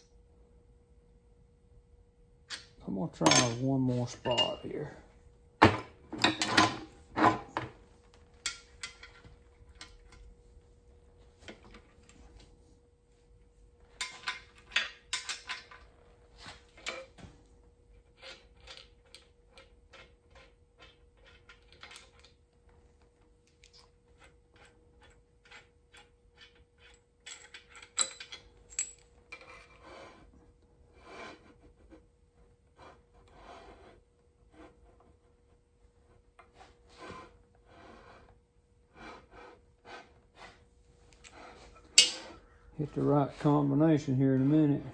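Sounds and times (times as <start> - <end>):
faint steady hum: 0.0 - 44.9.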